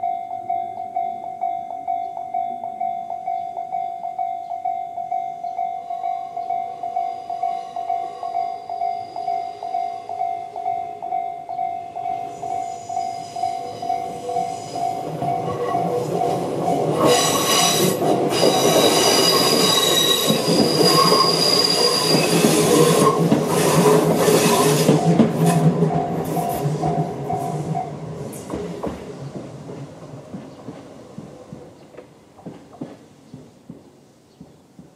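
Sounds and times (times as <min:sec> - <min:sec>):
level crossing warning bells: 0:00.0 - 0:23.4, 0:24.0 - 0:28.2
train wheels clattering and squealing: 0:12.1 - 0:31.4.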